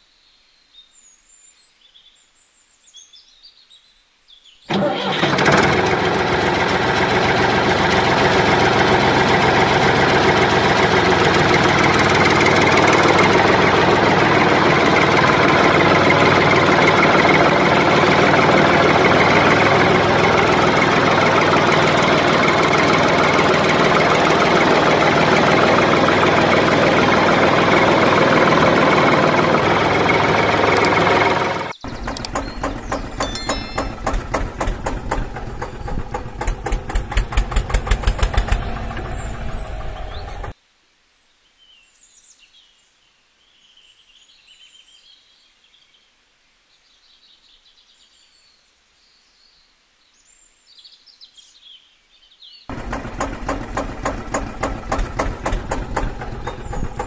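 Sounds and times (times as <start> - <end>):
motor running loudly: 5.2 - 40.5, 52.7 - 57.0.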